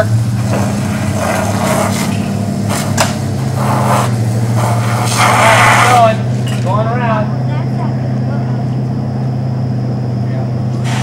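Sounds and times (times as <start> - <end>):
engine humming: 0.0 - 11.0
short hissing noises: 0.6 - 6.0, 10.8 - 11.0.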